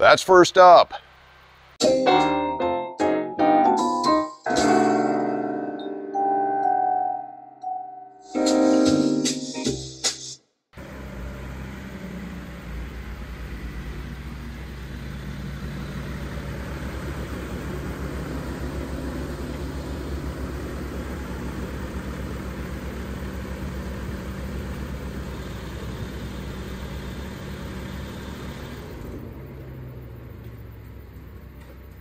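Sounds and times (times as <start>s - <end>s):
diesel engine running: 10.8s - 32.0s.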